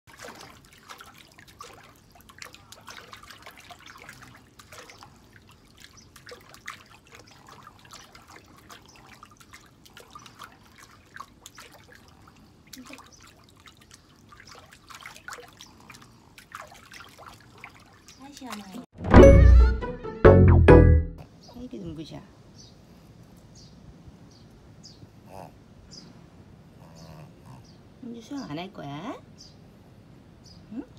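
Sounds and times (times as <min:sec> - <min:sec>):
water splashing and dripping: 0:00.1 - 0:18.9.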